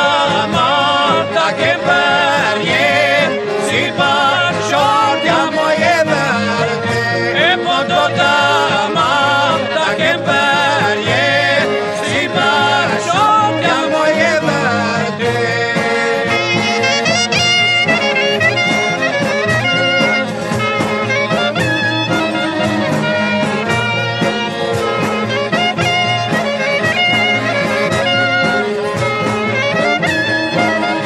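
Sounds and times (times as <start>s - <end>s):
folk ensemble accompaniment: 0.0s - 31.0s
ornamented wind instrument melody: 0.0s - 31.0s.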